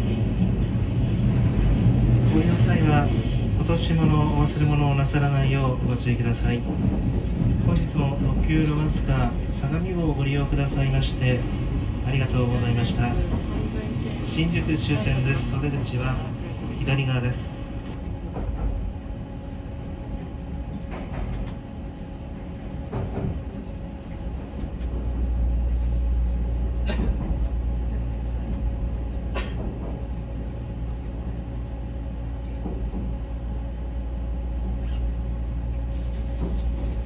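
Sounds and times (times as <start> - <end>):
electric train running rumble: 0.0 - 37.0.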